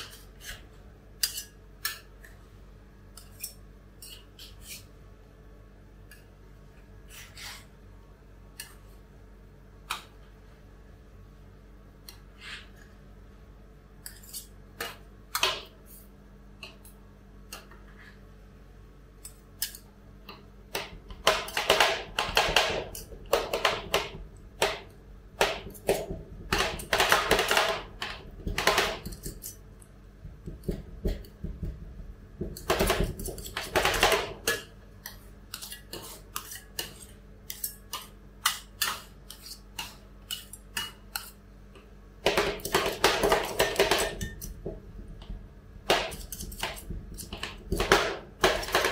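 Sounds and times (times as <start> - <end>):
low steady hum: 0.0 - 48.9
metal spatulas tapping on steel plate: 32.4 - 41.4.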